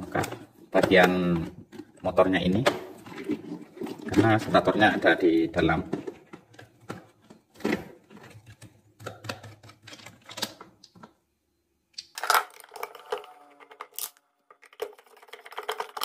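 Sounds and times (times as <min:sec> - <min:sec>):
plastic housing clicks and scraping: 0:12.0 - 0:16.0.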